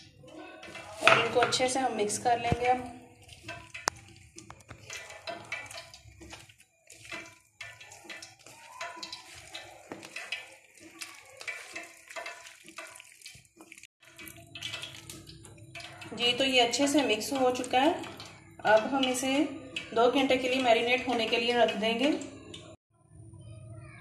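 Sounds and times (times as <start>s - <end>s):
hand squishing raw chicken: 3.0s - 16.1s.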